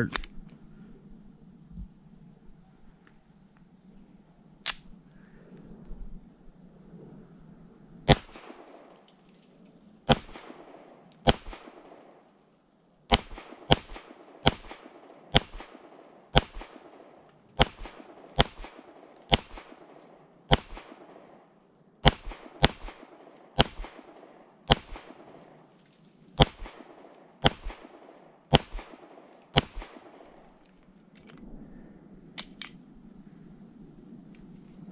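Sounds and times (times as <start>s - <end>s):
pistol shots: 8.1s - 9.0s, 10.1s - 12.2s, 13.1s - 21.4s, 22.0s - 25.5s, 26.4s - 30.6s.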